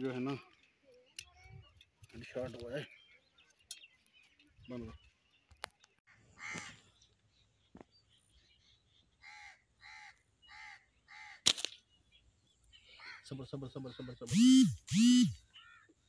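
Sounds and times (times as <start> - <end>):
crow cawing: 6.4 - 6.7, 9.2 - 11.4.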